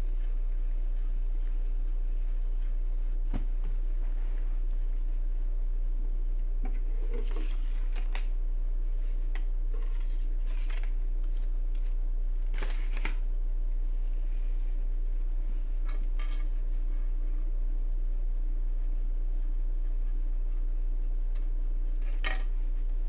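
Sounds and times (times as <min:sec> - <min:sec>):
steady low hum: 0:00.0 - 0:23.0
paper rustling: 0:07.0 - 0:08.3, 0:09.7 - 0:13.2.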